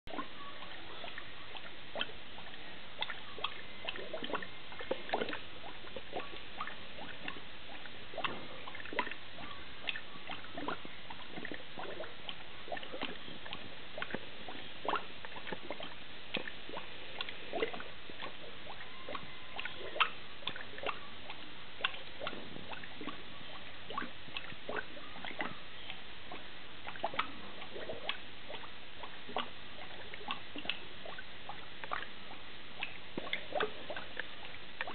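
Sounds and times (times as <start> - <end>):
airlock bubbling: 0.1 - 34.9
faint steady hiss: 0.1 - 34.9.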